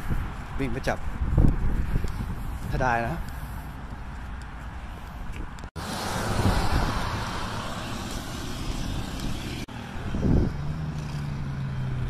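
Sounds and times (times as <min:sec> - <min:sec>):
car passing: 0:05.8 - 0:12.0.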